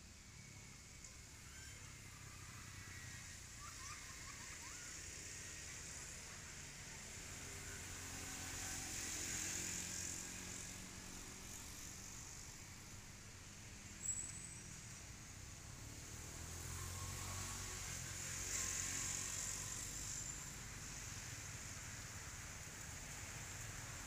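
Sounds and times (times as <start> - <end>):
steady high hiss: 0.0 - 24.0.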